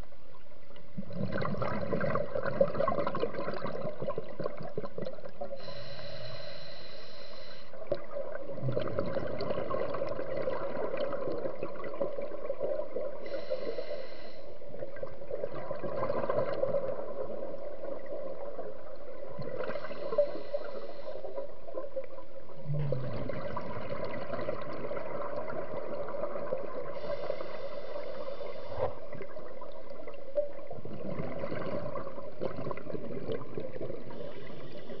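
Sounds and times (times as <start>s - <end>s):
bubbling exhaust underwater: 0.7s - 35.0s
regulator inhale with whistle: 5.6s - 7.8s, 13.2s - 14.6s, 19.6s - 21.4s, 27.0s - 29.0s, 34.1s - 35.0s.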